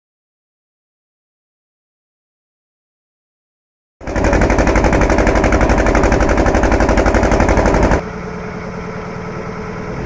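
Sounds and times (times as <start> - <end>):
boat engine chugging: 4.0 - 8.0.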